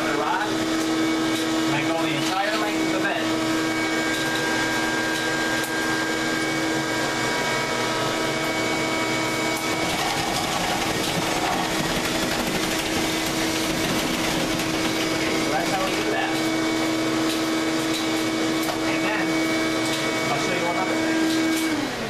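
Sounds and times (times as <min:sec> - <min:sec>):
vacuum cleaner running: 0:00.0 - 0:22.0.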